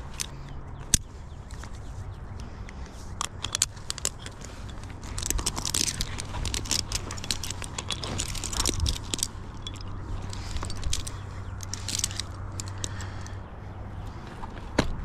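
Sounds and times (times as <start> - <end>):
climbing hardware clinking: 0.0 - 13.4
rope being handled: 0.0 - 13.4
steady low hum: 0.0 - 15.0.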